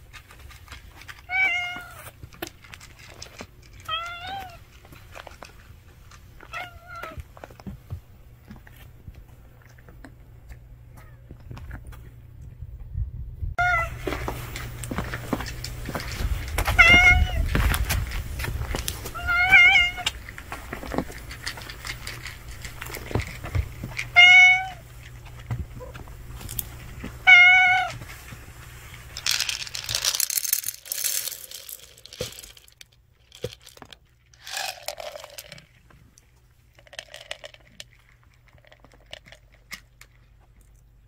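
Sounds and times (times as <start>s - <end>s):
dry cat food rattling: 0.0s - 7.8s, 14.1s - 40.9s
cat meowing: 1.3s - 2.1s, 16.7s - 17.5s, 19.1s - 20.1s, 24.2s - 24.8s, 27.2s - 28.0s.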